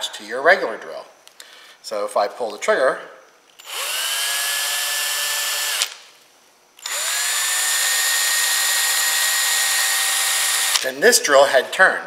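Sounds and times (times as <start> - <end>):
cordless drill whining: 3.6 - 6.0, 6.8 - 10.8
drill click: 3.6 - 6.0, 6.8 - 10.9.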